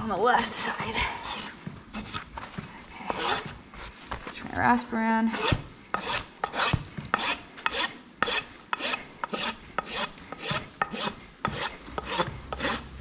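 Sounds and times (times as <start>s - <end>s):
rasp filing hoof: 1.1s - 2.3s, 3.0s - 4.0s, 5.3s - 13.0s.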